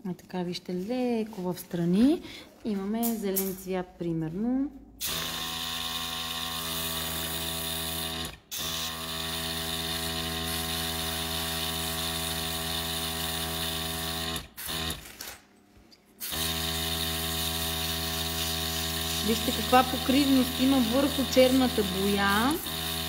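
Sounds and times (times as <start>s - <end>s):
airbrush compressor humming and hissing: 5.0s - 15.0s, 16.2s - 23.0s.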